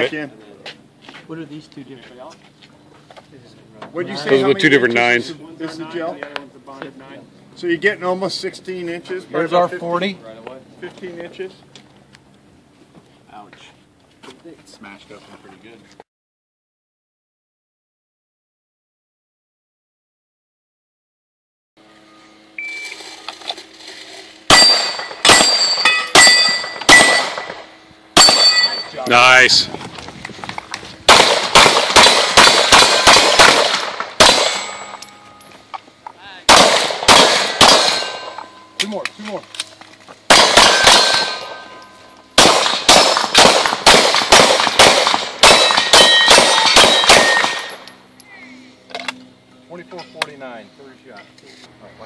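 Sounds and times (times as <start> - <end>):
shot timer beep: 22.6 - 23.0
pistol shots: 24.5 - 27.6, 28.2 - 28.8, 31.1 - 35.0, 36.5 - 38.4, 40.3 - 41.6, 42.4 - 47.8
steel targets ringing: 24.5 - 29.5, 34.2 - 35.8, 36.6 - 39.5, 40.3 - 43.8, 45.0 - 48.3.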